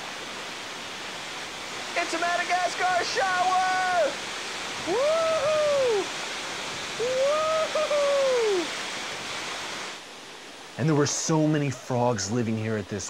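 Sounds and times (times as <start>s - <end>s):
waterfall rushing: 0.0s - 13.0s
man whooping: 2.5s - 4.2s, 4.8s - 6.1s, 7.0s - 8.7s.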